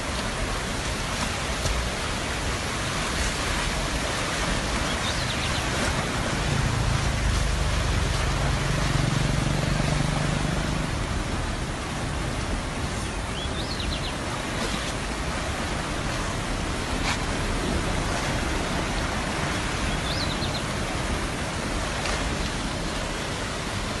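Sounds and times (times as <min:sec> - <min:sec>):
floodwater rushing: 0:00.0 - 0:24.0
heavy rain: 0:00.0 - 0:24.0.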